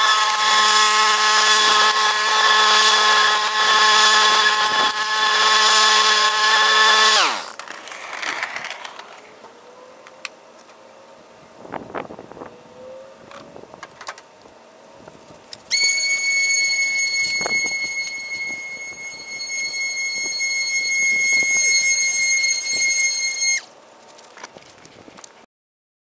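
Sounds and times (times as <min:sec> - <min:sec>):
leaf blower whining: 0:00.0 - 0:07.6, 0:15.7 - 0:23.7.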